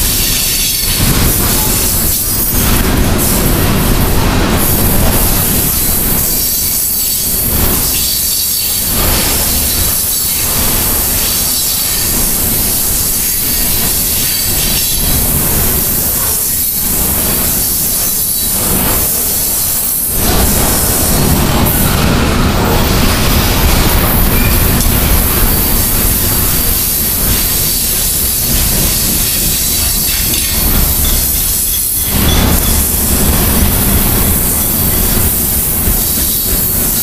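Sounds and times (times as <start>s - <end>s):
train wheels rumbling on rails: 0.0s - 37.0s
high wheel squeal: 24.2s - 33.1s.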